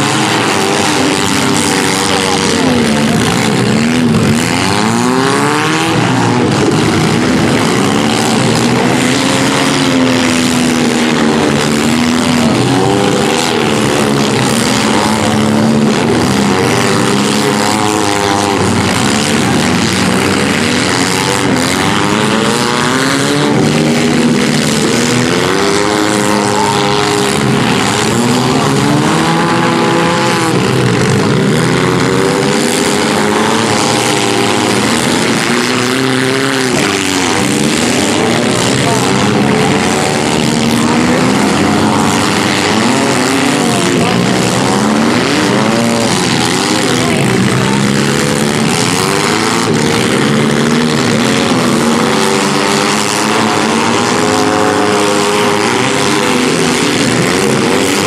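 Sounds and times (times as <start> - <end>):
small car engines revving: 0.0 - 58.0.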